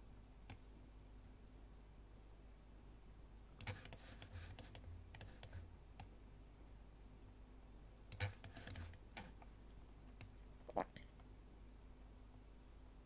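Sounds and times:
mouse and keyboard clicks: 3.6s - 6.1s, 8.1s - 9.4s.

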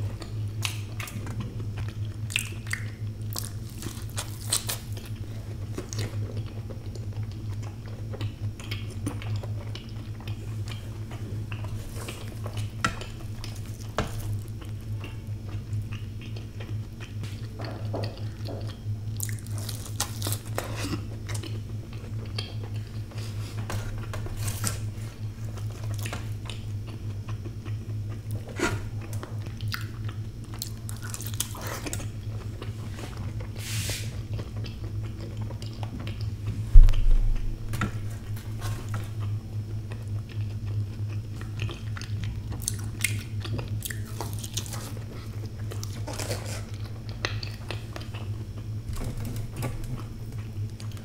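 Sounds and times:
biting and wet chewing: 0.0s - 51.0s
low hum: 0.0s - 51.0s
loud low thump: 36.7s - 37.7s.

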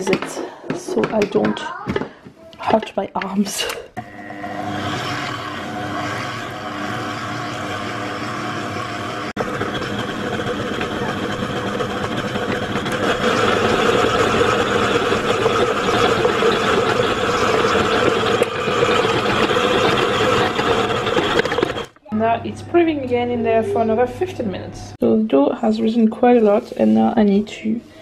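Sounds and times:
stand mixer kneading dough: 4.0s - 21.9s.

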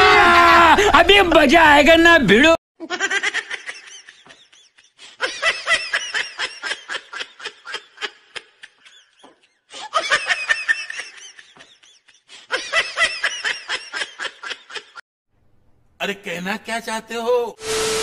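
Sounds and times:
high-pitched laughter: 2.8s - 15.0s.

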